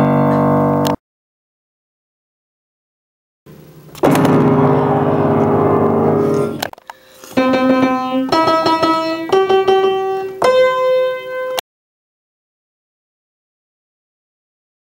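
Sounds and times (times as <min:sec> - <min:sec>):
slow piano chords: 0:00.0 - 0:01.0, 0:03.9 - 0:11.6.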